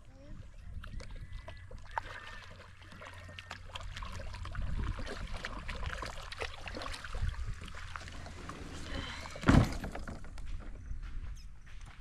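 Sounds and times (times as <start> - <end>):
paddle splashing in water: 0.8 - 10.0.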